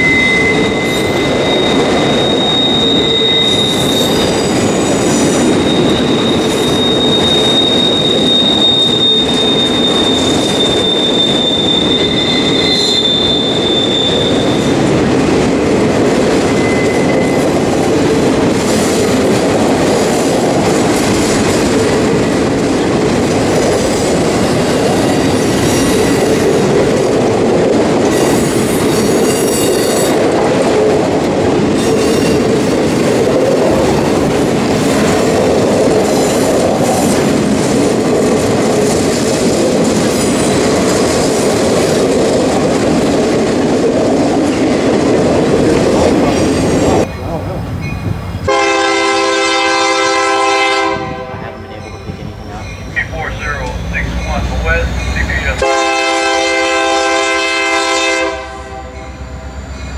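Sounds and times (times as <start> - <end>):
high-pitched wheel squeal: 0.0 - 14.7, 16.5 - 17.5
steel wheels rumbling on rail: 0.0 - 59.9.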